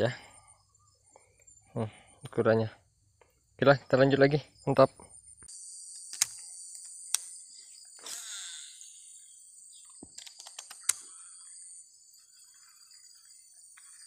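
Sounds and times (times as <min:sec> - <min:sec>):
sharp click: 0:05.9 - 0:07.3.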